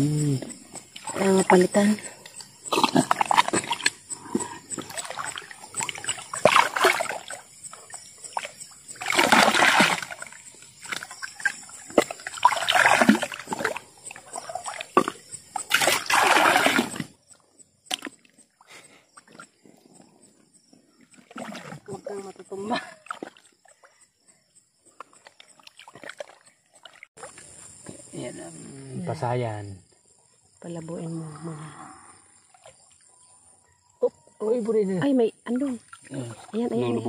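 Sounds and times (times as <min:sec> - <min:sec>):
river water splashing: 0:00.8 - 0:17.3, 0:21.1 - 0:23.9, 0:25.0 - 0:28.0, 0:35.5 - 0:37.0.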